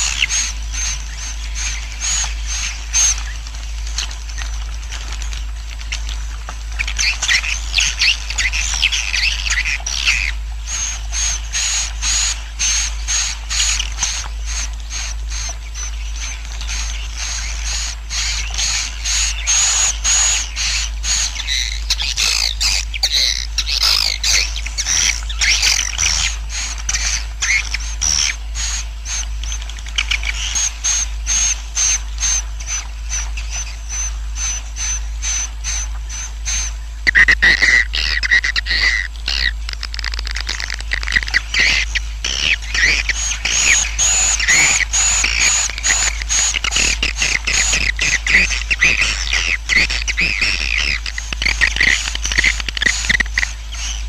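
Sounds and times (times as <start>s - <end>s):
birds twittering chirps: 0.0s - 54.0s
steady low hum: 0.0s - 54.0s
rapid clicking: 37.1s - 53.6s.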